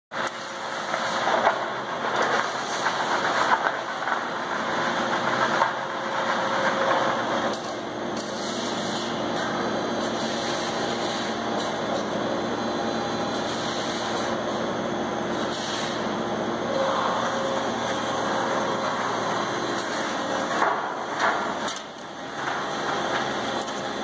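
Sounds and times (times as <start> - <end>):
demolition machine knocking and clattering: 0.2 - 9.7, 17.7 - 24.0
machine hum: 0.2 - 24.0.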